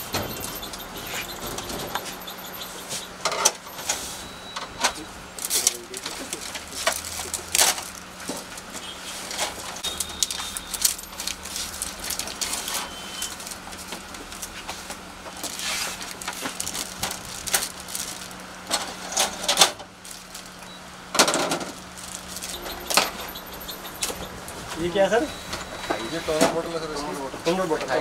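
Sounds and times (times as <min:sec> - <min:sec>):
plastic packaging crinkling: 0:09.9 - 0:14.6, 0:15.3 - 0:18.6, 0:19.9 - 0:20.7, 0:21.7 - 0:22.6.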